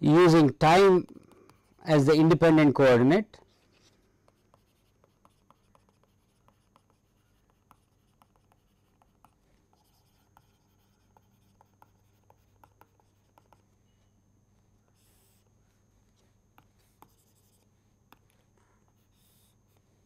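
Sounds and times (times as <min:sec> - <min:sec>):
low electrical hum: 0:00.0 - 0:20.0
stylus writing on tablet: 0:00.2 - 0:14.1, 0:14.8 - 0:20.0.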